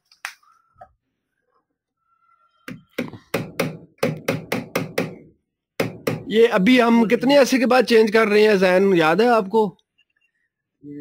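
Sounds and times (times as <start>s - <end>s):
hammer tapping on metal: 5.8s - 6.4s.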